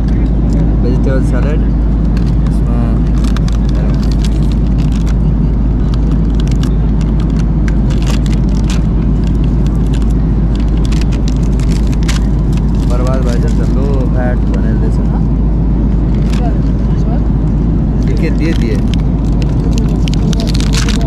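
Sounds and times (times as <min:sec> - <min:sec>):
vehicle rumbling: 0:00.0 - 0:21.0
small clicks and rattles: 0:03.1 - 0:14.0, 0:18.0 - 0:21.0.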